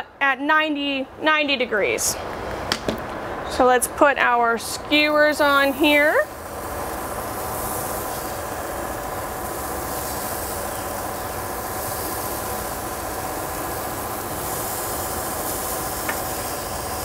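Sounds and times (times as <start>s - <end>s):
vegetables sizzling on a grill: 4.9s - 17.0s.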